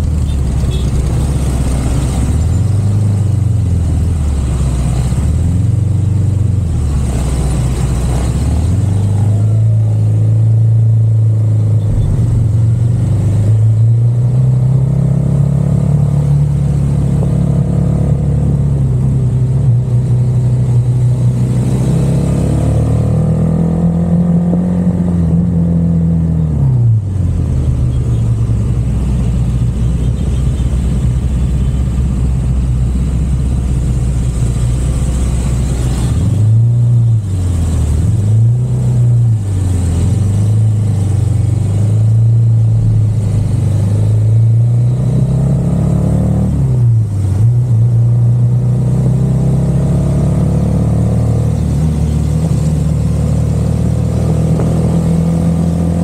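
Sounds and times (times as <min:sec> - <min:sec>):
car engine running: 0:00.0 - 0:15.2, 0:39.3 - 0:45.9.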